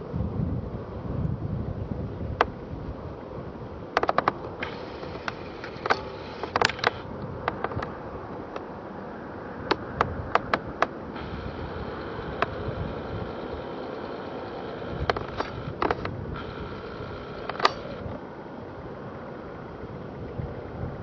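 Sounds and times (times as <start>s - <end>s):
steady low rumble: 0.0s - 21.0s
sharp clicks and taps: 4.0s - 8.7s, 9.7s - 11.0s, 15.0s - 16.2s, 17.4s - 18.0s.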